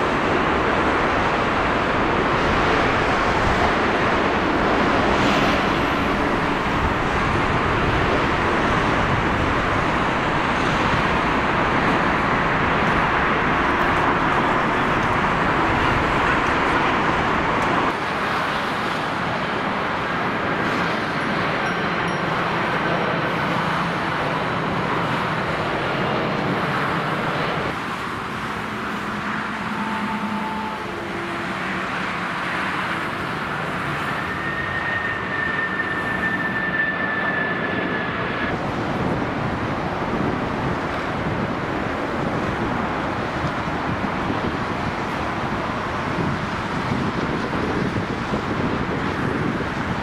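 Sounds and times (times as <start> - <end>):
high jet engine whine: 0.0 - 50.0
jet engines of low airliners: 0.0 - 50.0
motorway traffic rushing: 0.0 - 50.0.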